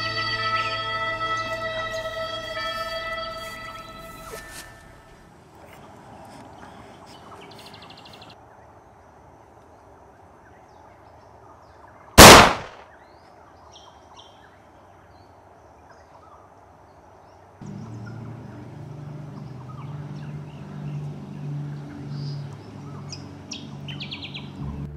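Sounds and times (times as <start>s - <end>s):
handgun shot: 12.2s - 12.8s.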